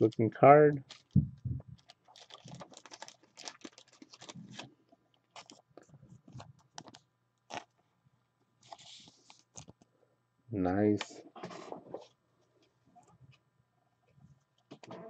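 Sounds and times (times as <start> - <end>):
trading card crinkling and clicking: 0.1 - 1.2, 1.8 - 4.7, 5.3 - 7.7, 8.6 - 9.9
card rustle: 0.8 - 7.7.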